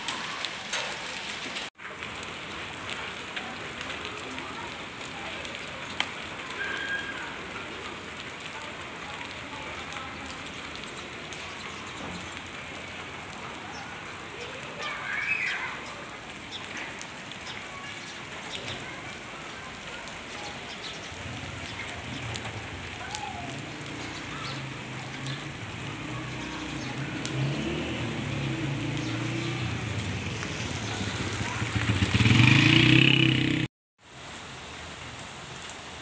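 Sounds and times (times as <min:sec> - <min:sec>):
rain on wet street: 0:00.0 - 0:36.0
raindrops ticking on surfaces: 0:00.0 - 0:36.0
motorcycle passing by: 0:21.2 - 0:33.7.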